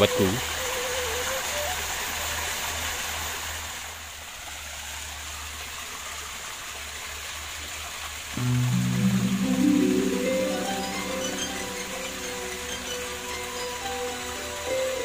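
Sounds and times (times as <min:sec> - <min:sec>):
waterfall pouring into pool: 0:00.0 - 0:09.3
music: 0:08.4 - 0:15.0.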